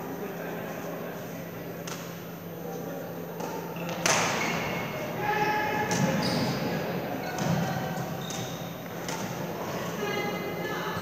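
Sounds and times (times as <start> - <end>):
shoes squeaking on court floor: 3.4 - 10.4.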